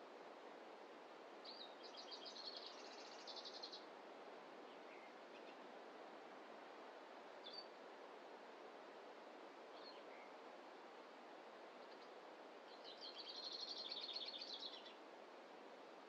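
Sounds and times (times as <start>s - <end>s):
faint steady forest rush: 0.0s - 16.0s
bird chirp: 1.4s - 3.8s, 11.8s - 15.0s
songbird singing a trill: 1.4s - 3.9s, 7.4s - 7.8s, 9.7s - 10.4s, 11.8s - 15.0s.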